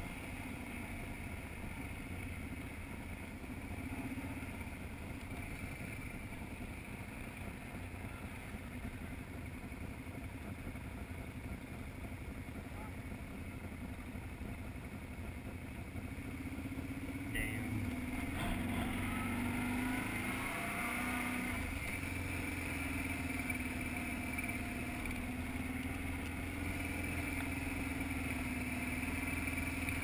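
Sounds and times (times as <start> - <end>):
quad engine revving: 17.2 - 30.0.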